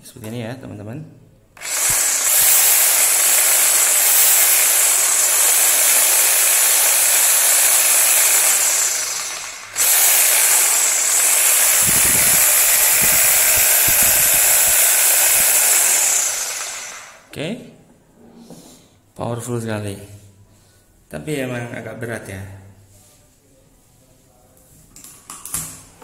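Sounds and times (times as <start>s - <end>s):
reciprocating saw running: 1.6s - 17.3s.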